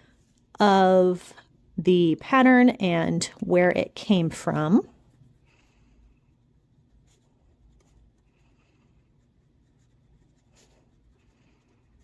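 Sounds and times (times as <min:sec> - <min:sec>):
pen scratching on paper: 0:06.3 - 0:12.0.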